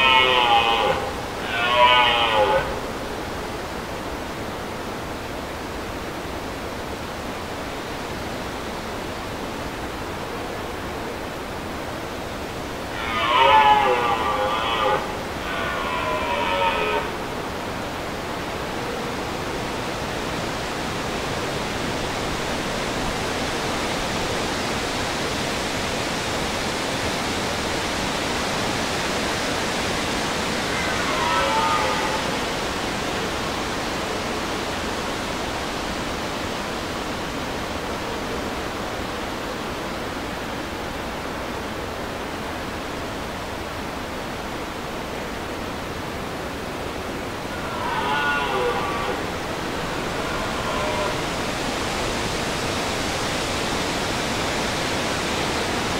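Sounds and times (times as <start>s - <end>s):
deer stag roaring: 0.0s - 3.0s, 12.9s - 17.4s, 30.5s - 32.6s, 47.4s - 52.0s
steady rushing noise: 31.9s - 55.9s.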